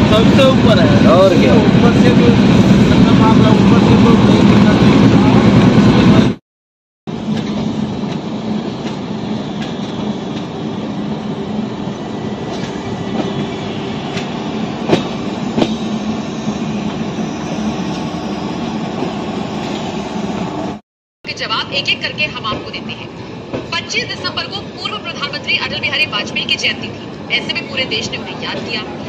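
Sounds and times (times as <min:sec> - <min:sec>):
train wheels rumbling on rails: 0:00.0 - 0:06.4, 0:07.1 - 0:20.8.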